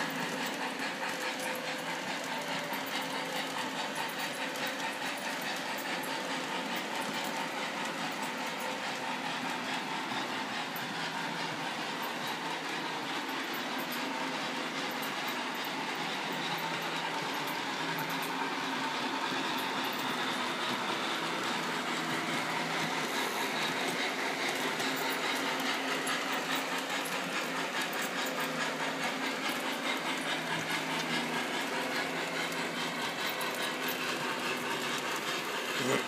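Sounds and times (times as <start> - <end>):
model train wheels rolling on rails: 0.0 - 36.0.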